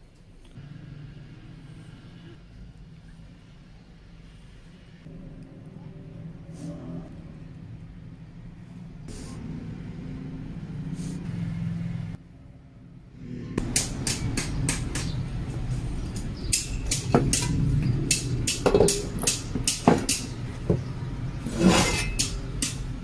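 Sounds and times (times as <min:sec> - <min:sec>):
sharp clicks and knocks: 0:16.1 - 0:20.9.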